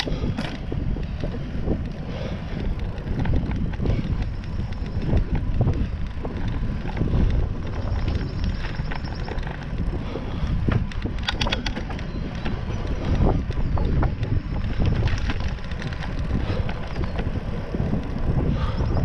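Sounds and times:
rolling tyre noise: 0.0 - 19.0
wind buffeting microphone: 0.0 - 19.0
sharp clicks or rattles: 8.1 - 17.3.

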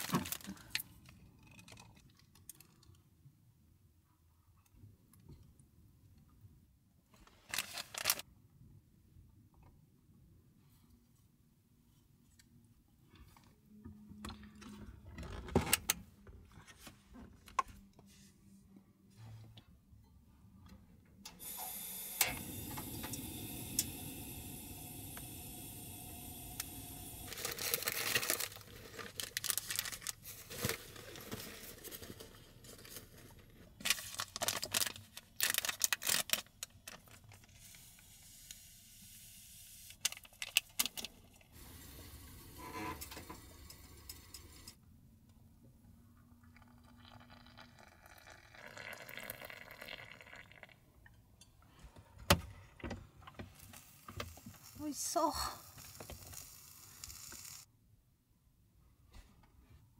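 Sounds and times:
packaging rustling: 7.4 - 8.2, 27.3 - 33.2, 33.8 - 37.3
steady hiss: 21.4 - 27.6.

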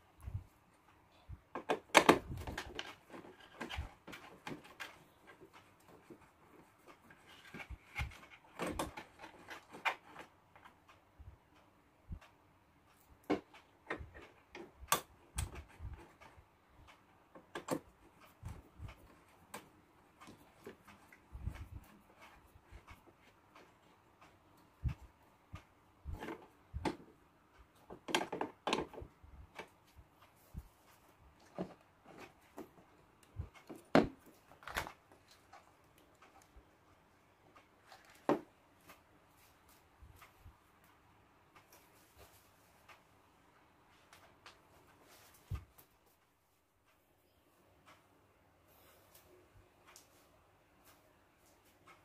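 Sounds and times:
knocks and clicks of plastic parts: 1.5 - 10.9, 13.2 - 23.8, 24.8 - 29.8, 31.4 - 35.6, 37.9 - 38.6.

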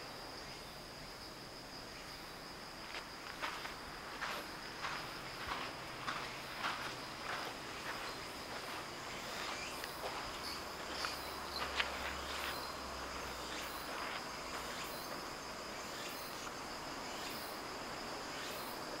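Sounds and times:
insects chirping: 0.0 - 19.0
footsteps: 2.8 - 15.2.

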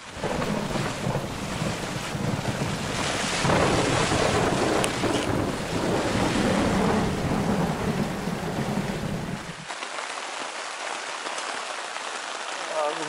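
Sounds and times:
storm wind buffeting tent: 0.0 - 9.7
rain on tent: 0.0 - 13.0.

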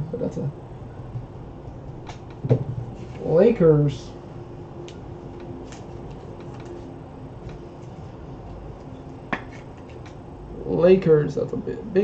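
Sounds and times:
faint steady tone: 0.0 - 12.0
room hum: 0.0 - 12.0
trading cards clicking: 4.8 - 6.8.

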